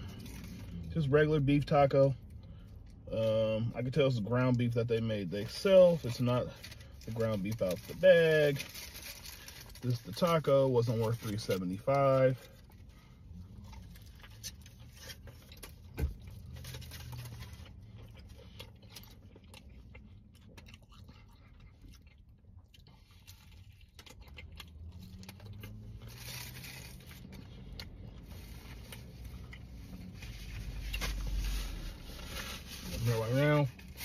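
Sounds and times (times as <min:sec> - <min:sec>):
person chewing crunchy food: 0:12.5 - 0:34.0.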